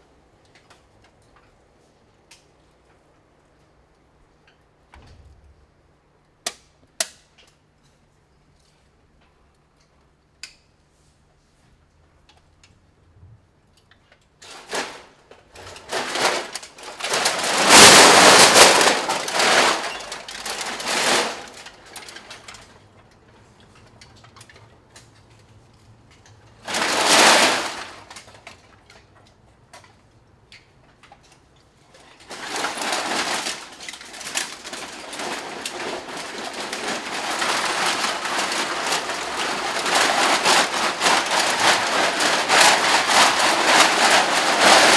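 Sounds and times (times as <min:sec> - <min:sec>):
aluminium cans clattering: 0:32.2 - 0:44.9.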